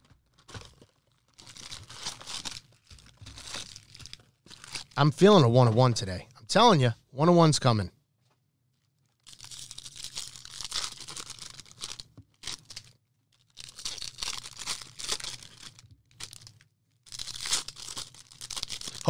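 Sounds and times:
foil wrappers tearing and crinkling: 0.0s - 5.0s, 8.8s - 19.0s.

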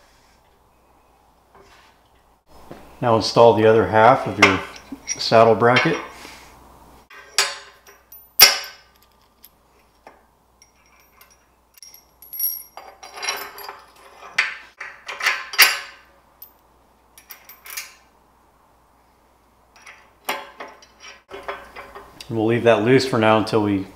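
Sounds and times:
metal bracket clanking: 7.1s - 9.4s, 19.8s - 22.2s.

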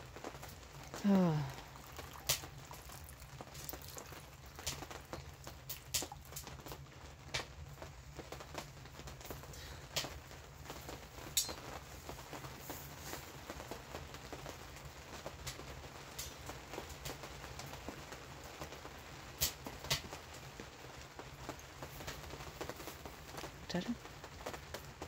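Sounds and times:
wet clicks pops and drips: 0.4s - 7.6s, 19.4s - 20.2s.

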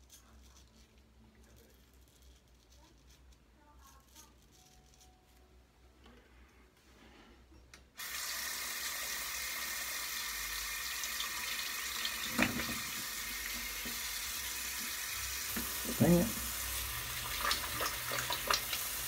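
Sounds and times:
tap running into sink: 12.0s - 14.0s.

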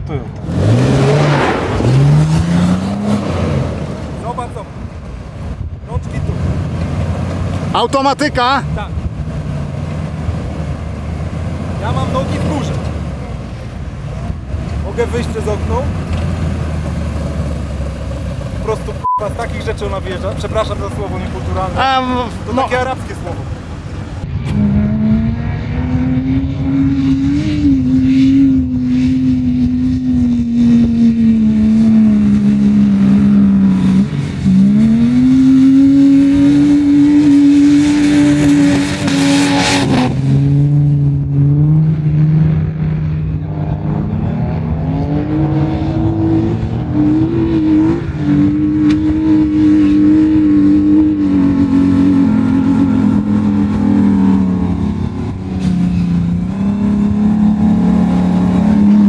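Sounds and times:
engine revving hard: 0.4s - 4.6s, 24.5s - 59.0s.

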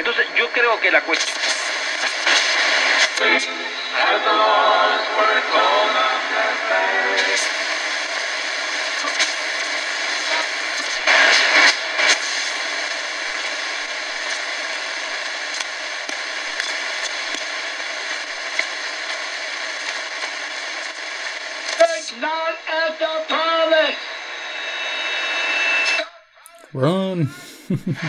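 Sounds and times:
shortwave radio static: 0.0s - 24.4s, 26.8s - 28.0s
radio crackles and pops: 0.6s - 3.5s, 7.2s - 22.1s
radio voice: 26.5s - 28.0s.

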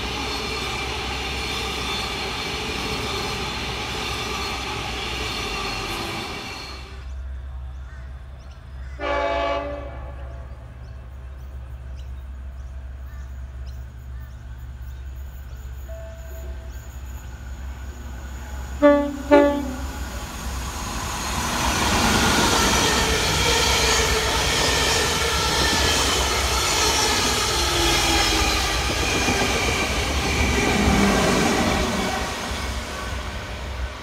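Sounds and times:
train wheels rumbling on rails: 0.0s - 9.0s, 10.2s - 34.0s
train horn blasts: 9.0s - 10.7s, 18.8s - 20.0s.

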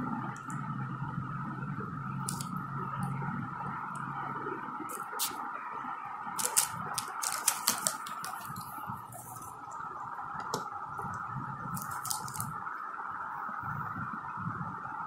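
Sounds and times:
steady high hum: 0.0s - 15.0s
plastic toy tools clicking: 6.4s - 8.4s.

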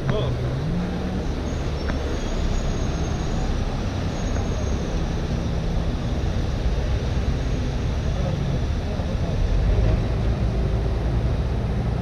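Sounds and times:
city street traffic rumble: 0.0s - 12.0s
low engine hum: 0.0s - 12.0s.

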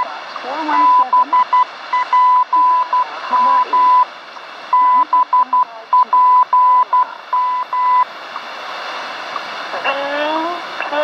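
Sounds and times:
radio static hiss: 0.0s - 11.0s
morse code tone: 0.8s - 4.1s, 4.7s - 8.0s.

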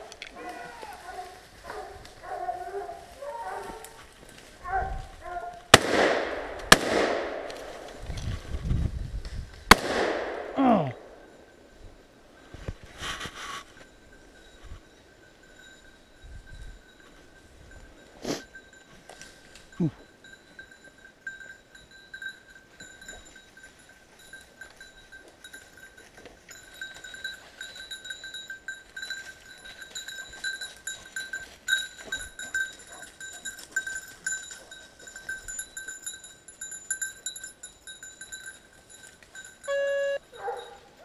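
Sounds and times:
dog collar bell jingling: 13.8s - 41.0s.

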